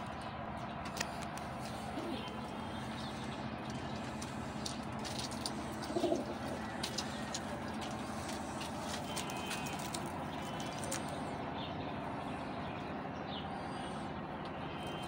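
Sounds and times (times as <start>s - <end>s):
steady background noise: 0.0s - 15.0s
pigeons cooing: 1.6s - 11.4s.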